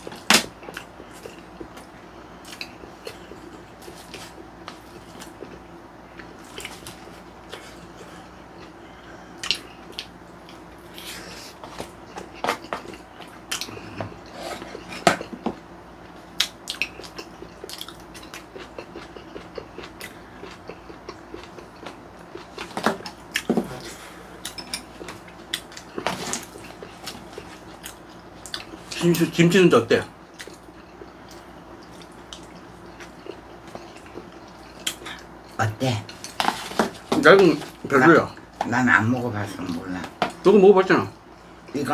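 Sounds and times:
chewing and biting food: 0.0 - 8.8, 9.4 - 29.4, 30.2 - 37.9.

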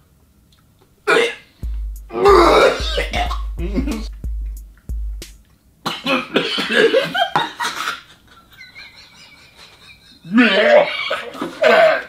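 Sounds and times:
man coughing: 2.2 - 4.0, 5.9 - 7.2.

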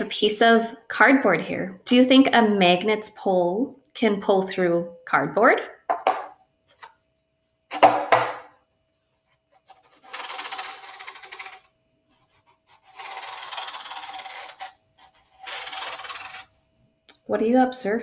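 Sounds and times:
knock: 5.9 - 6.3, 7.8 - 8.5
magnet scraping on cardboard: 9.4 - 16.6.

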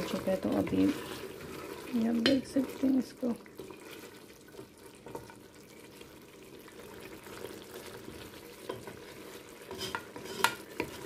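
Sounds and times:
food simmering and sizzling: 0.0 - 11.0.

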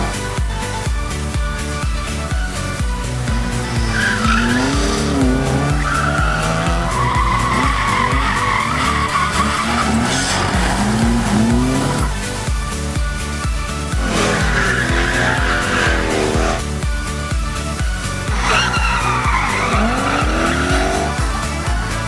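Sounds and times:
background music with steady beat: 0.0 - 22.0
engines revving: 0.0 - 22.0
car tyres squealing: 3.2 - 12.4, 14.0 - 16.6, 18.3 - 22.0.

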